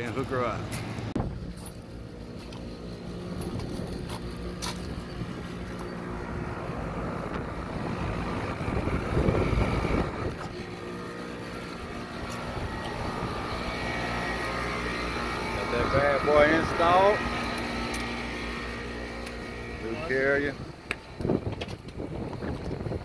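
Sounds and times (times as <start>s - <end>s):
air conditioning units humming: 0.0s - 23.0s
rush of air from fan: 6.3s - 17.9s.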